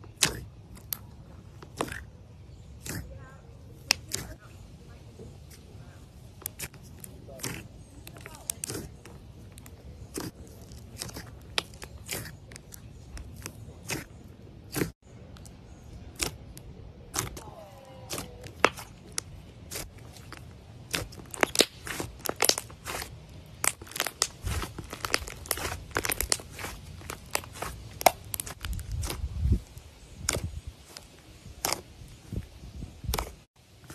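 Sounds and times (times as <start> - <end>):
clay slime clicking and popping: 16.1 - 17.4, 18.1 - 29.2.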